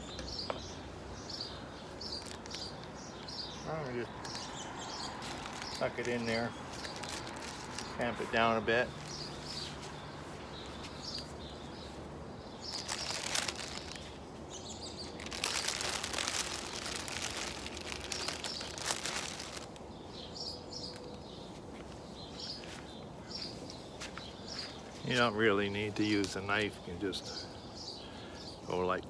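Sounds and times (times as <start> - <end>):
small birds chirping: 0.0 - 29.0
plastic bag crinkling: 2.0 - 9.8, 12.6 - 14.2, 14.9 - 19.8.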